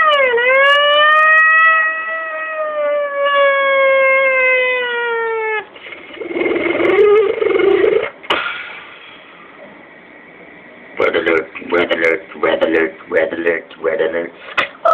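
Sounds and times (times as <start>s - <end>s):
beatboxer siren-like tone: 5.1s - 8.2s
beatboxer rough wavering buzz: 5.8s - 8.8s.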